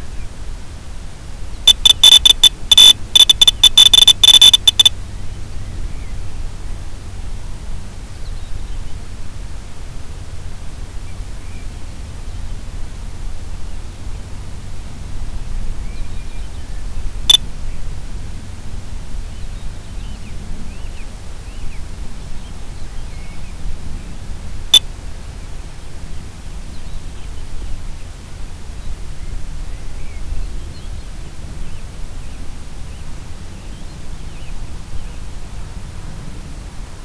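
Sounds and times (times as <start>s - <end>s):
steady rushing noise: 0.0s - 22.8s
sharp clicks: 1.7s - 4.9s.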